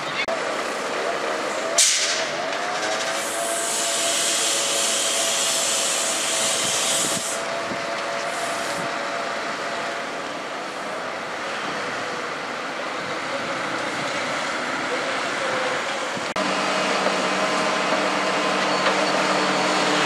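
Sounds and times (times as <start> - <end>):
compressed air hissing: 3.1 - 7.5, 8.2 - 8.9.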